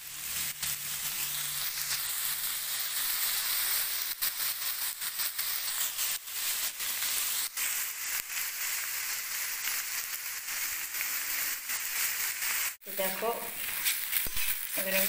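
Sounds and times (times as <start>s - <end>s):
onions sizzling in hot oil: 0.0s - 15.0s
spatula scraping a pan: 11.3s - 15.0s.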